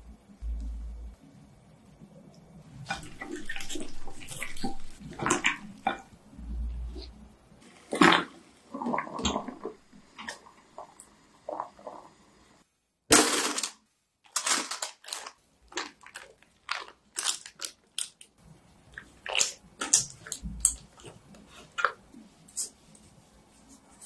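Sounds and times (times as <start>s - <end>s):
soft wet handling sounds: 2.2s - 7.3s, 14.4s - 24.0s
foil rustling and crinkling: 14.3s - 18.3s.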